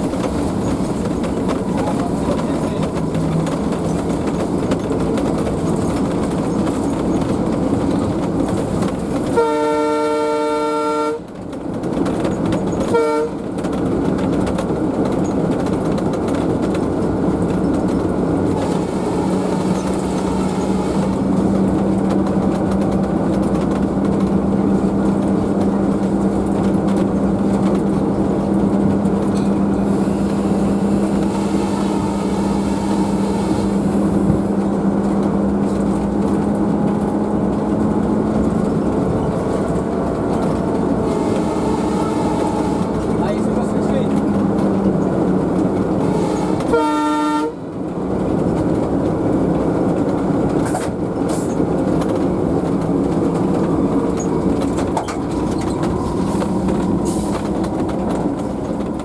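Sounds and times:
diesel engine running: 0:00.0 - 0:09.5, 0:13.5 - 0:46.5
wheels rumbling: 0:00.0 - 0:59.0
diesel locomotive horn: 0:09.2 - 0:11.3, 0:12.8 - 0:13.6, 0:18.5 - 0:21.4, 0:29.8 - 0:34.6, 0:40.6 - 0:43.8, 0:45.9 - 0:47.8.

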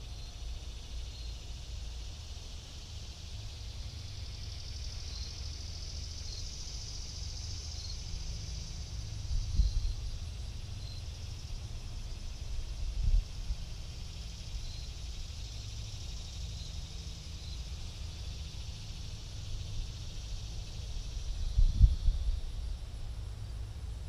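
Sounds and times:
high insect buzz: 0:00.0 - 0:24.0
wind buffeting microphone: 0:21.4 - 0:22.5.

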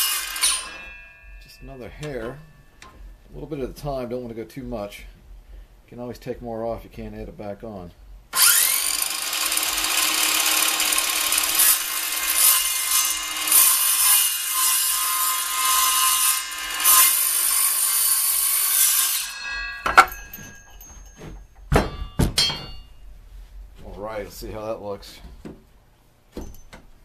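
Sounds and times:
circular saw cutting wood: 0:00.0 - 0:02.4, 0:08.4 - 0:20.8
sharp knocks: 0:19.5 - 0:23.0.

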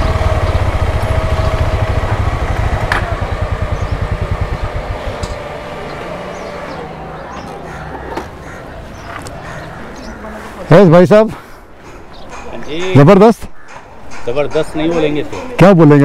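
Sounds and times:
motorcycle engine thumping: 0:00.0 - 0:06.7.

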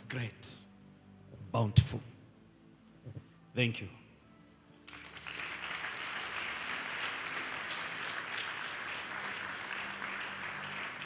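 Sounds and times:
congregation applauding: 0:04.9 - 0:11.0.

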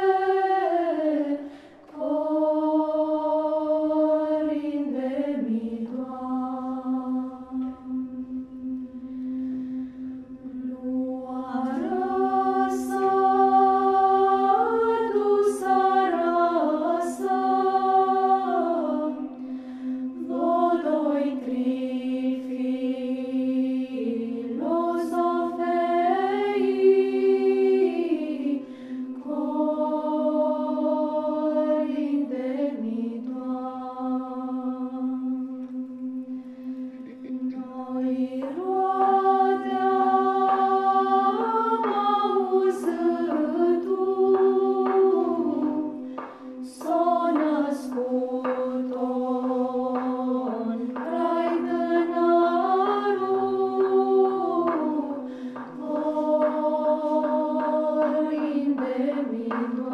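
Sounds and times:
female choir singing a cappella: 0:00.0 - 0:59.9.

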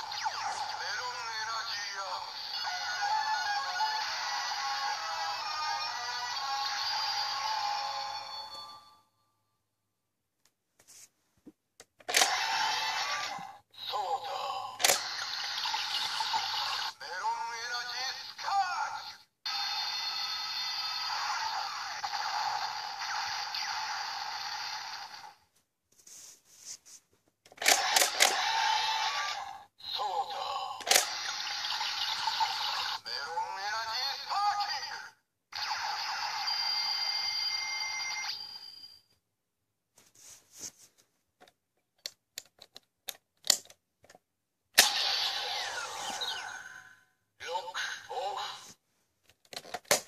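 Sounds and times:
toy electronic sound effect: 0:00.0 - 0:08.7, 0:12.1 - 0:25.4, 0:27.6 - 0:38.4, 0:44.8 - 0:48.7.

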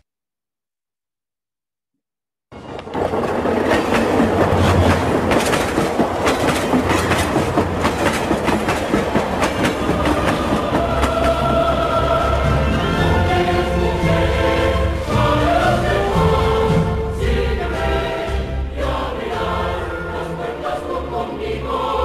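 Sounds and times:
rushing rumble with rapid clicks: 0:02.6 - 0:12.0
sustained musical tones: 0:09.2 - 0:22.0.

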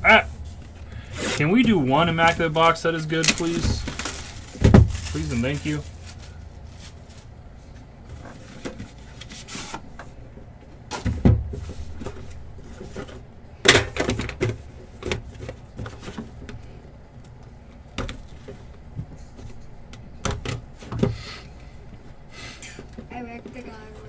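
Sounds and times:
packaging clicks and rustles: 0:02.2 - 0:07.3.

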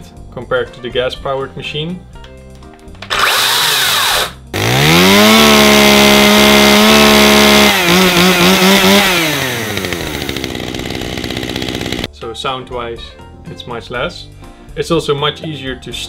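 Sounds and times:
battery chainsaw whirring: 0:03.0 - 0:12.1
gas chainsaw revving and idling: 0:03.1 - 0:12.1.

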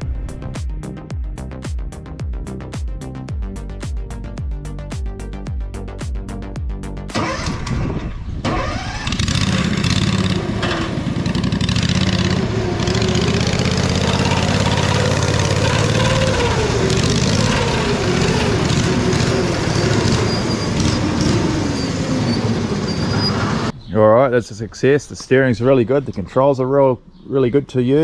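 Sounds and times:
engine running under load: 0:07.1 - 0:23.8.

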